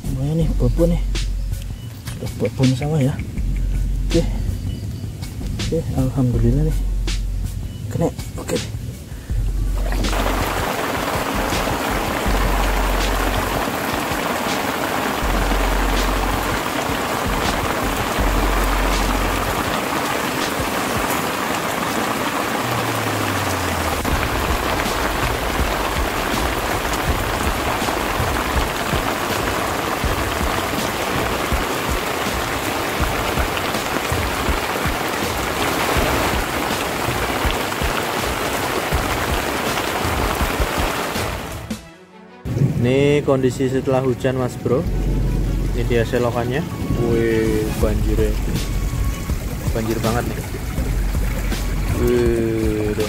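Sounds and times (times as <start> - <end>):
low rumbles: 0.0 - 41.7, 44.8 - 53.0
heavy rain on a tarp: 9.7 - 41.8, 44.8 - 53.0.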